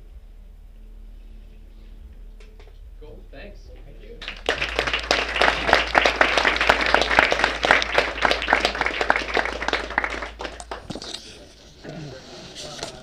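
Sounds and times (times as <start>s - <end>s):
audience applauding: 4.2s - 11.6s.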